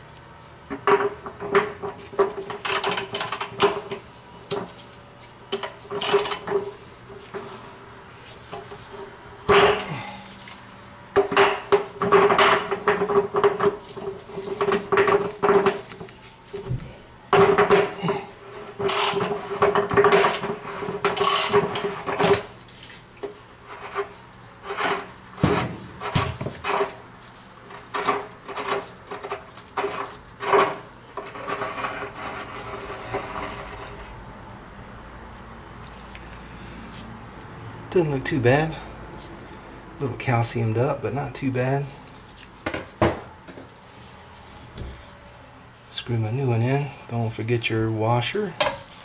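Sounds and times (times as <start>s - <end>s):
metal scraping: 29.8s - 34.2s.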